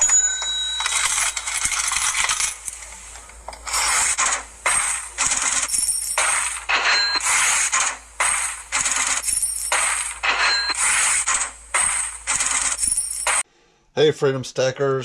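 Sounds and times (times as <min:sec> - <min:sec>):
coin ringing tone: 0:00.0 - 0:02.6, 0:05.7 - 0:07.4, 0:09.2 - 0:11.0, 0:12.8 - 0:13.4
coins clinking and pouring: 0:00.0 - 0:02.8, 0:04.8 - 0:07.6, 0:09.0 - 0:13.4.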